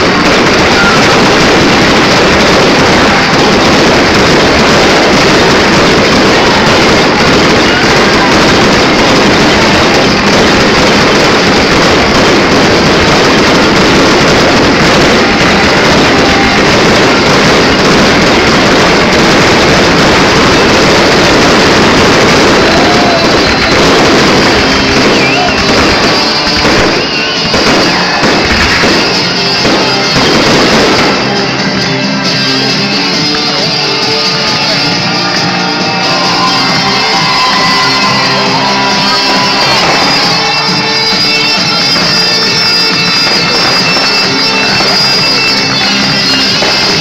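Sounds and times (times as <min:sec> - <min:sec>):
fireworks fountains rushing: 0:00.0 - 0:47.0
loud music: 0:00.0 - 0:47.0.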